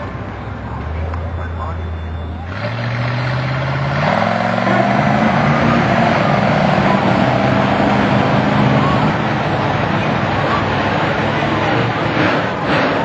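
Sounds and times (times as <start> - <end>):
monster truck engine revving: 0.0 - 13.0.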